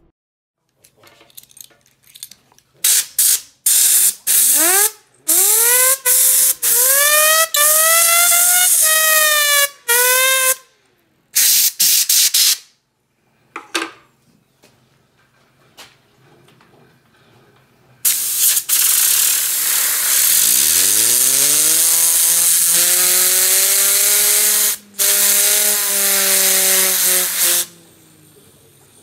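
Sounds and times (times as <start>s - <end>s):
compressed air blasting: 2.8s - 10.6s, 11.4s - 12.7s, 18.0s - 27.8s.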